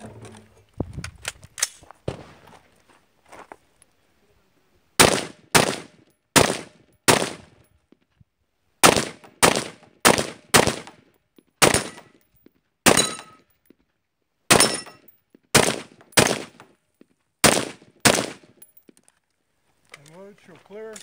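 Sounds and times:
rifle shots with echo: 5.0 - 7.5, 8.8 - 11.0, 11.6 - 12.1, 12.9 - 13.3, 14.5 - 15.0, 15.6 - 16.6, 17.4 - 18.5.

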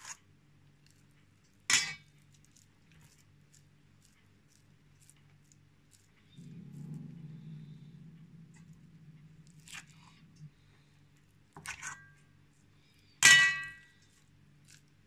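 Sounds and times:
metal spoon knocking enamel bowl: 13.2 - 13.8
spoon clanging into bowl: 13.2 - 13.8.

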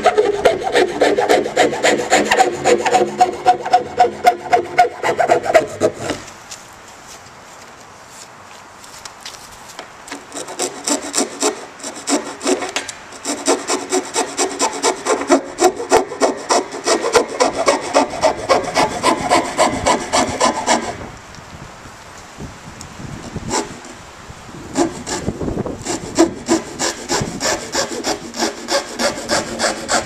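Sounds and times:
hacksaw sawing through plastic: 0.0 - 6.3, 10.3 - 21.0, 23.5 - 23.8, 24.7 - 30.0.

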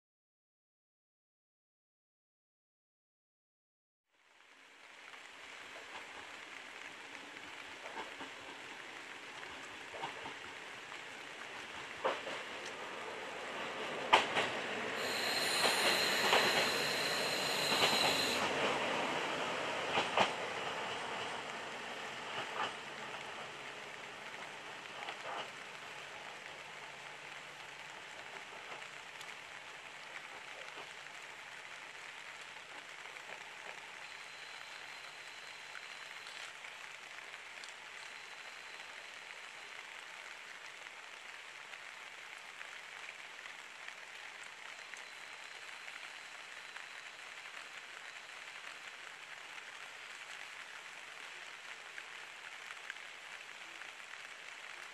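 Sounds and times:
rain falling on foliage: 4.1 - 54.9
diesel railcar: 5.4 - 36.3
train wheels clacking on rail joints: 13.8 - 18.8.

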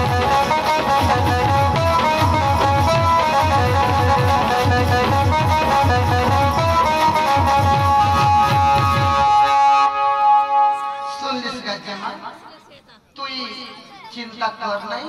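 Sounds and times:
instrumental dance music: 0.0 - 11.5.

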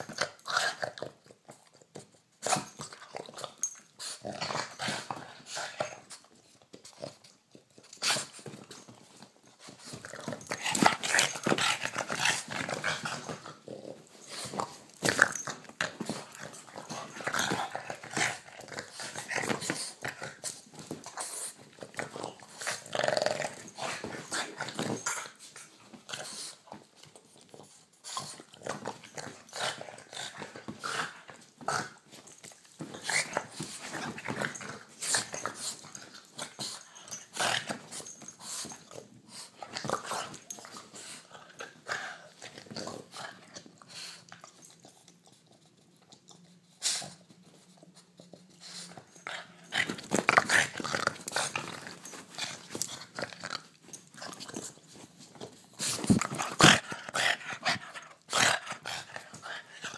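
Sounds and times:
dog growling: 22.0 - 25.0.

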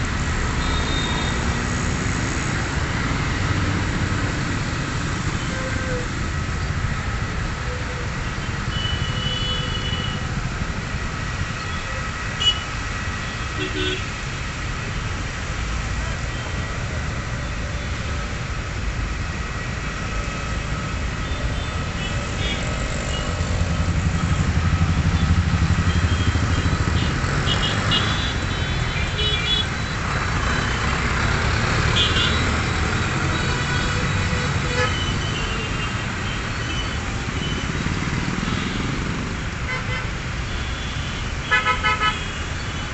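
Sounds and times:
traffic engines rumbling: 0.0 - 42.9.

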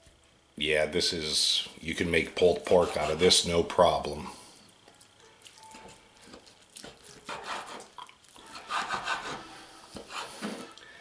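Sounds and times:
knife scraping meat on board: 2.7 - 3.4, 7.2 - 10.8.

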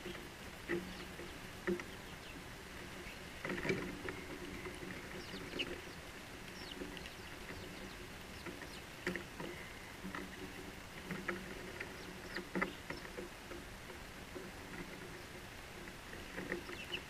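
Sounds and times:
sparrows chirping: 0.0 - 3.4, 4.1 - 9.9, 11.7 - 13.2, 16.2 - 17.0.

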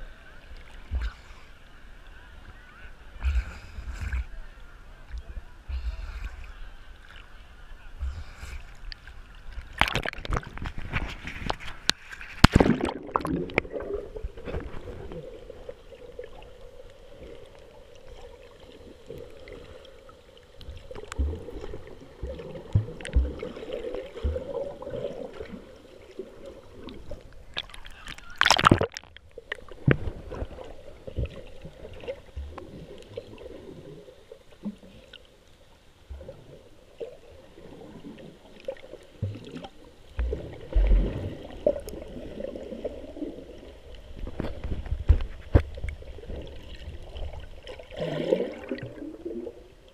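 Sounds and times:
muffled water sloshing and gurgling: 0.0 - 49.9
loud water splashes: 12.3 - 14.9, 27.5 - 29.1.

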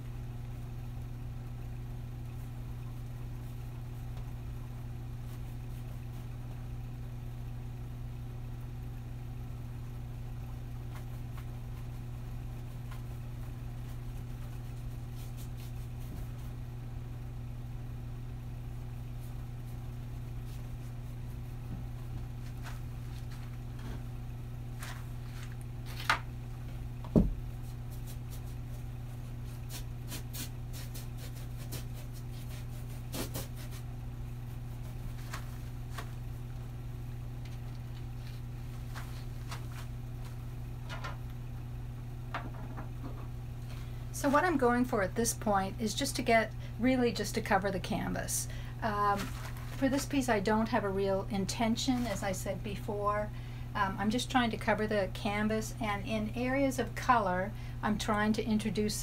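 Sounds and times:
steady low hum: 0.0 - 59.0
paintbrush strokes on canvas: 13.8 - 16.6, 27.5 - 36.0.

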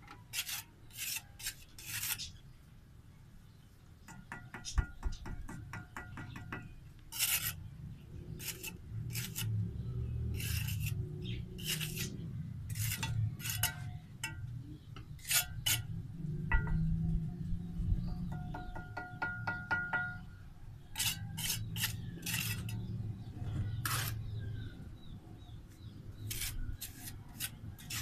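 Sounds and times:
trowel scraping mortar: 0.1 - 2.4, 7.1 - 7.6, 8.3 - 9.6, 10.3 - 14.4, 15.2 - 15.9, 21.0 - 22.9, 23.7 - 24.4, 26.2 - 28.0
metallic taps on bricks: 4.1 - 6.7, 18.3 - 20.3.

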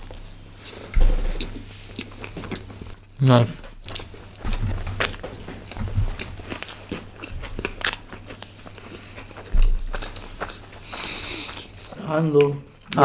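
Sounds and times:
chewing and biting food: 0.0 - 13.0
low thump: 1.0 - 1.4.

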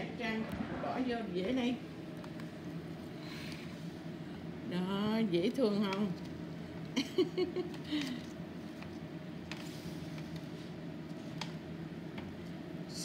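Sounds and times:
steady low hum: 0.0 - 2.8
murmured voice: 0.2 - 1.3.

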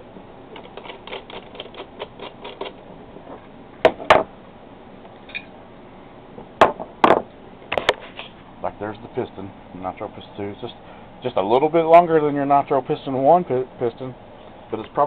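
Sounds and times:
sharp knocks on workbench: 3.8 - 4.3, 6.6 - 7.3.

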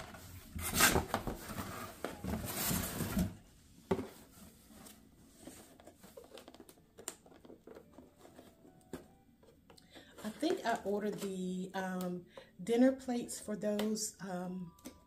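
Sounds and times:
cardboard box rustling and scraping: 0.0 - 6.6.

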